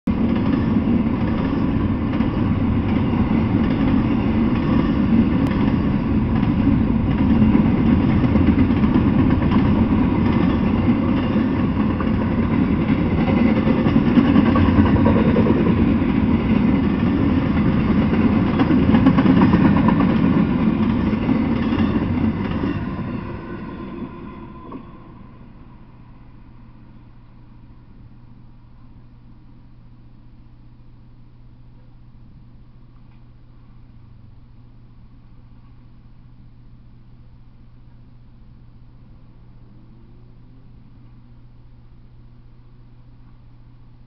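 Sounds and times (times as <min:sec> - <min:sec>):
freight train wheels rumbling on rail: 0:00.1 - 0:26.7.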